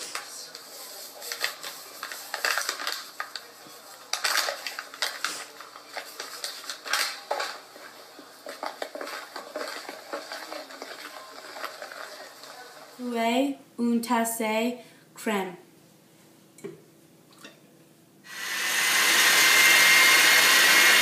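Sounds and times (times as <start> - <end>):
spoon scraping plastic bowl: 5.9 - 13.0.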